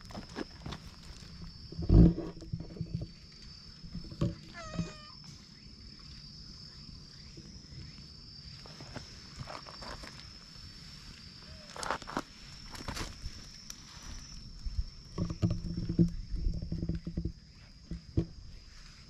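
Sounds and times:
faint steady high whine: 0:00.0 - 0:19.0
cat meowing: 0:04.5 - 0:05.2.

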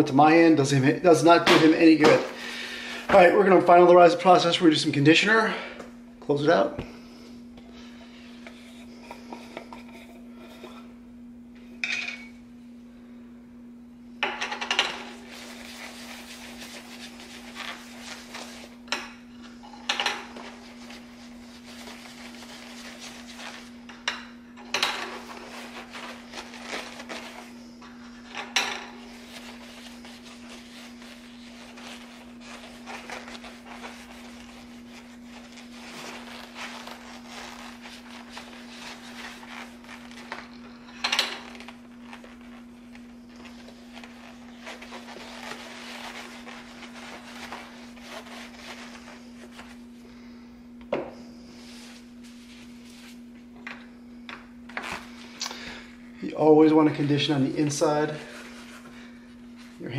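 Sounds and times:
steady low hum: 0:00.0 - 0:59.9
leather mitt rubbing and rustling: 0:15.0 - 0:18.8, 0:20.3 - 0:23.9, 0:24.9 - 0:40.8, 0:41.4 - 0:50.2, 0:51.2 - 0:55.4, 0:57.0 - 0:59.9.

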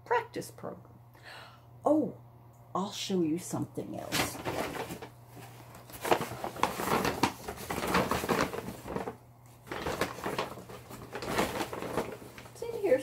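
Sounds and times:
hands rummaging through bag: 0:04.1 - 0:13.0.

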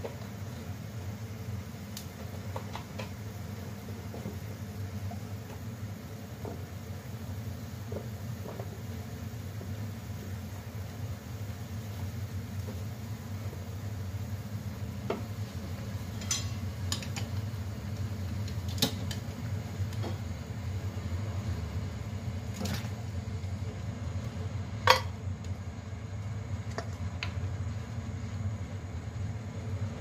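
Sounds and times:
gas burner rumble: 0:00.0 - 0:30.0
pot boiling: 0:00.0 - 0:30.0
chopsticks clinking on metal: 0:16.2 - 0:17.3.

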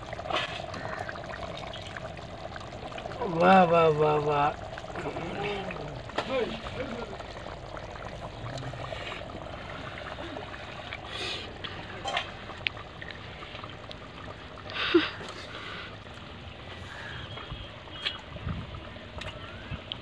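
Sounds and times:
person slurping from ladle: 0:08.3 - 0:12.3.

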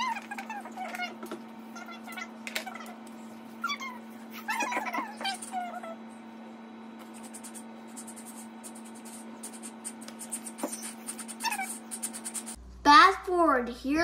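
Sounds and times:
steady low hum: 0:00.0 - 0:14.0
pencil scratching on paper: 0:07.0 - 0:12.6.

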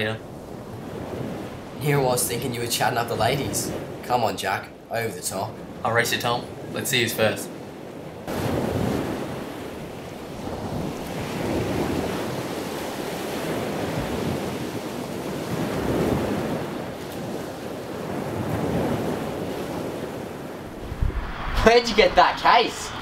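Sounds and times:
wind: 0:00.0 - 0:23.0
ocean surf rushing onto beach: 0:08.3 - 0:23.0.

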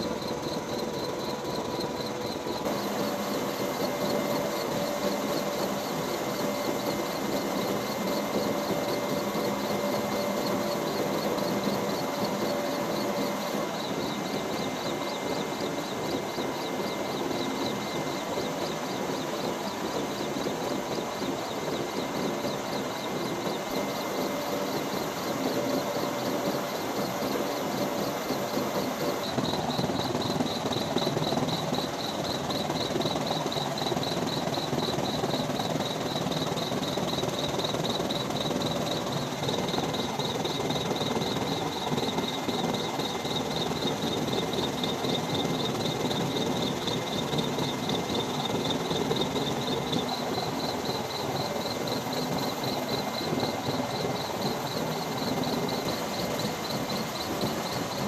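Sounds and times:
fast pulsing whine: 0:00.0 - 0:58.0
helicopter engine and rotor: 0:00.0 - 0:58.0.

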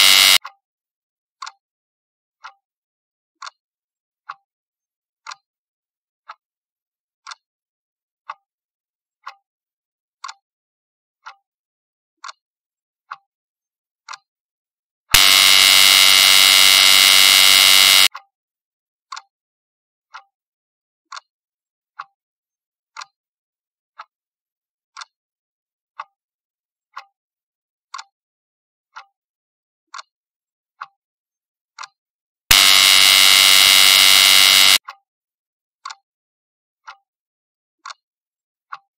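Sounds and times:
loud buzzer: 0:00.0 - 0:00.4, 0:15.2 - 0:18.1, 0:32.5 - 0:34.8.

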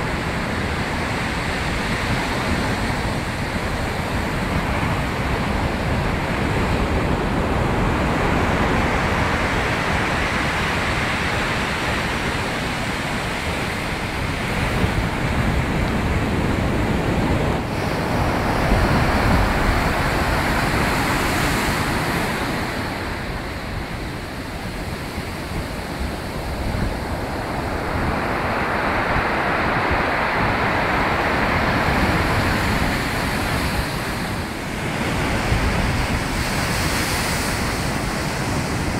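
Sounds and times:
waves breaking on shingle beach: 0:00.0 - 0:38.9.

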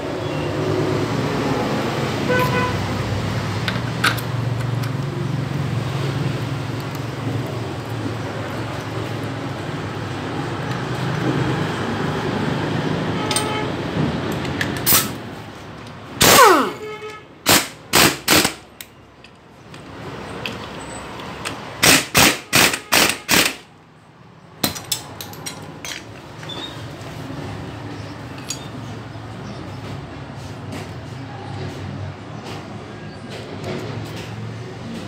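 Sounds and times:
impact wrench rattling bursts: 0:16.2 - 0:16.8, 0:17.4 - 0:18.7, 0:21.8 - 0:23.7.

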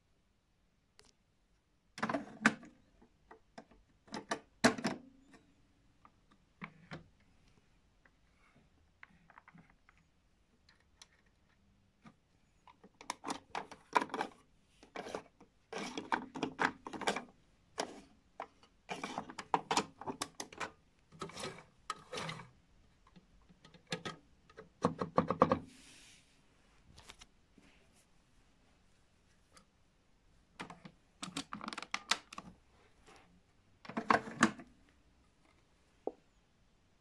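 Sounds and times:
toy plastic parts clicking and knocking: 0:12.7 - 0:25.6.

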